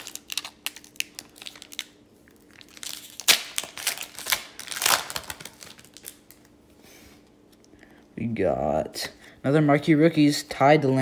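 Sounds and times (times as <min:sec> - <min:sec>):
card pack wrapper tearing: 0:00.0 - 0:06.4.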